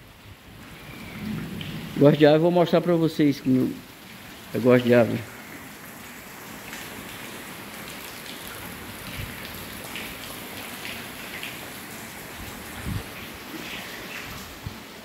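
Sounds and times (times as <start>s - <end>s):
light rain hiss: 0.0s - 15.0s
faint drips: 2.8s - 14.6s.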